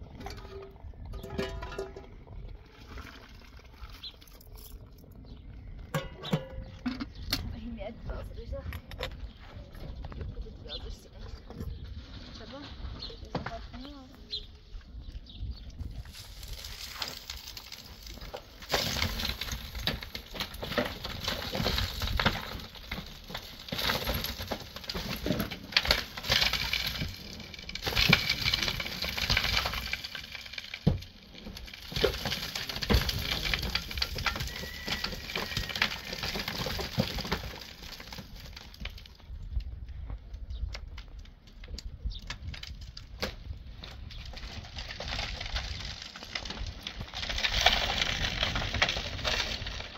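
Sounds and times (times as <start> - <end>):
dirt pouring down: 16.0 - 20.2.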